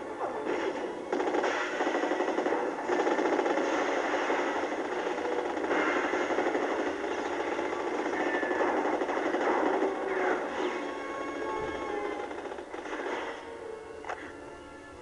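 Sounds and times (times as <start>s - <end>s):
explosions: 0.4s - 11.0s
rapid automatic gunfire: 0.5s - 11.0s, 12.2s - 13.4s.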